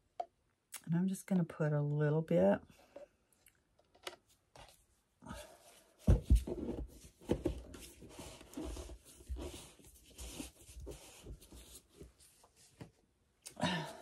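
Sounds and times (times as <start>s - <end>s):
rustling and scraping: 4.2s - 13.0s.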